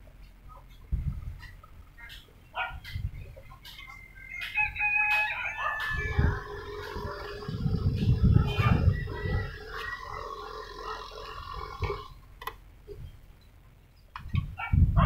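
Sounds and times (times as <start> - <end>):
wind on microphone: 0.8 - 1.6, 2.7 - 3.5, 4.5 - 12.2, 14.2 - 15.0
rooster crowing: 3.9 - 12.1.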